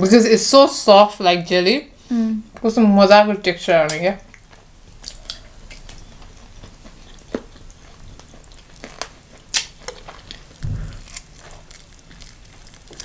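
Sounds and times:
chewing and sucking sounds: 4.3 - 13.0
low thud: 10.6 - 11.1.

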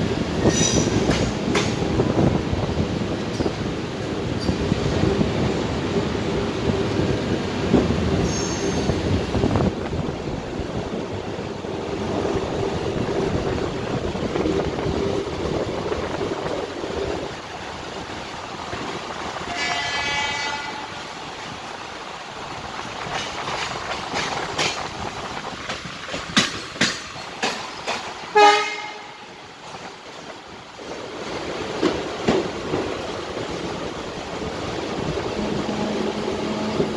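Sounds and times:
wheels clacking over rail joints: 0.0 - 2.4, 22.5 - 36.9
train rolling noise: 0.0 - 36.9
train horn: 19.4 - 21.0, 28.3 - 29.4.

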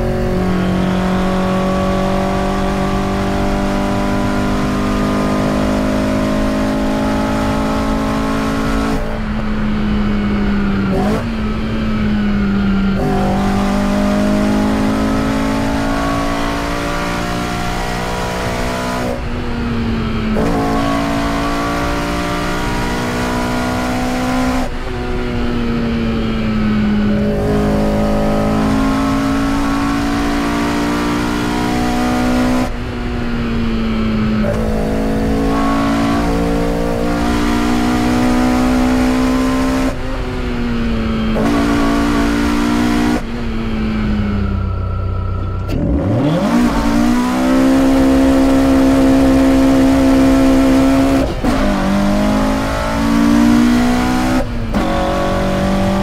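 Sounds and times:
car engine revving hard: 0.0 - 56.0.

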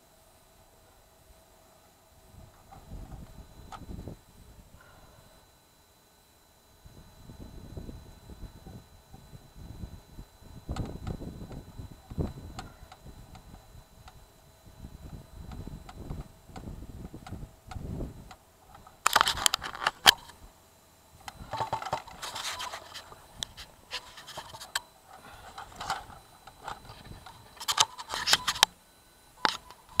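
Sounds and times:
camera handling scraping: 18.8 - 20.4, 21.4 - 28.7.

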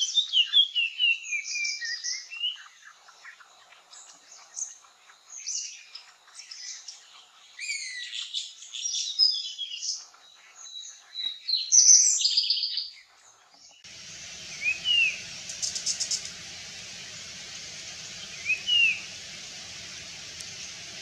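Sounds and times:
birds singing: 5.4 - 21.0
steady hiss: 13.8 - 21.0
rising and falling whistle: 14.5 - 16.3, 18.3 - 19.2.

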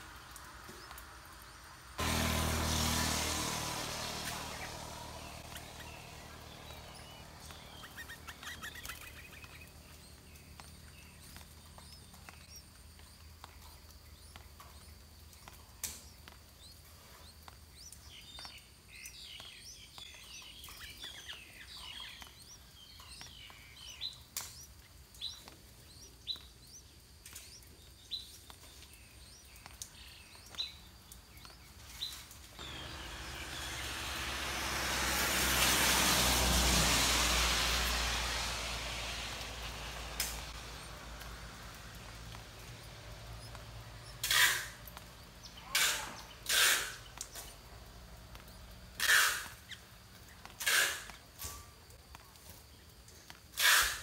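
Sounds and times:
passing vehicle noise: 0.0 - 16.0, 32.4 - 51.5
birds chirping: 0.0 - 54.0.

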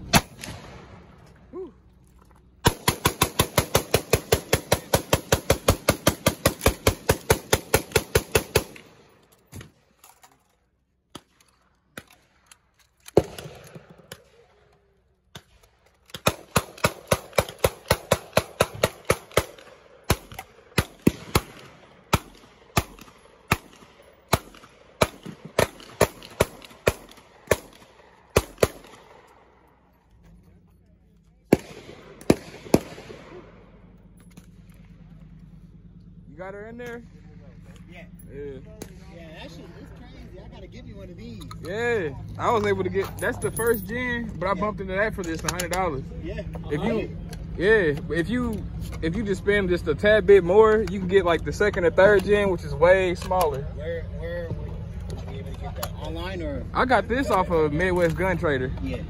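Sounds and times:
rifle gunfire: 0.0 - 1.1, 2.6 - 9.1, 13.1 - 14.6, 15.4 - 29.5, 31.5 - 34.7.

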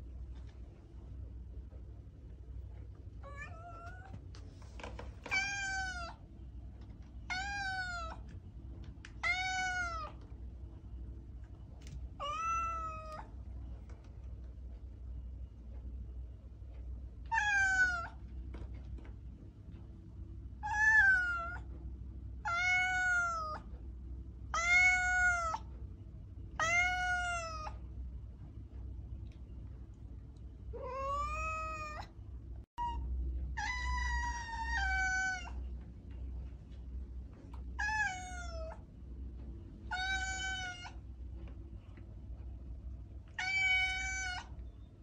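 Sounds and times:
low steady hum: 0.0 - 45.0
cat meowing: 3.2 - 4.2, 5.3 - 6.2, 7.3 - 8.3, 9.2 - 10.2, 12.2 - 13.3, 17.3 - 18.2, 20.6 - 21.7, 22.4 - 23.7, 24.5 - 25.7, 26.6 - 27.8, 30.8 - 32.1, 33.6 - 35.6, 37.8 - 38.8, 39.9 - 41.0, 43.3 - 44.6.

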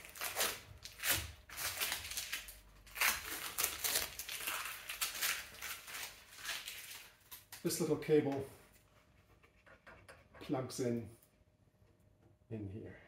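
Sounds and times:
tape being peeled off: 0.0 - 7.6
tape being scrunched up: 0.0 - 7.6.

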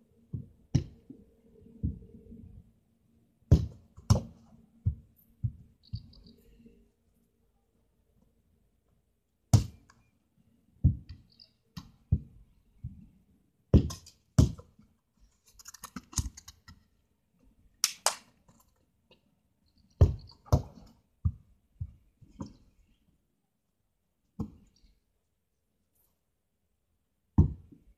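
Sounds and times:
football kicked and bouncing: 0.3 - 1.1, 3.5 - 6.1, 9.5 - 9.9, 10.8 - 11.2, 11.8 - 13.0, 13.7 - 14.7, 20.0 - 22.6, 27.4 - 27.8.

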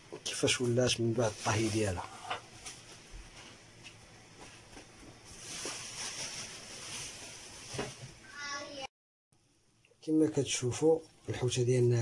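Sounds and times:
steady high hiss: 0.0 - 8.0
salt crunching and rustling: 0.8 - 2.0, 5.2 - 7.8.

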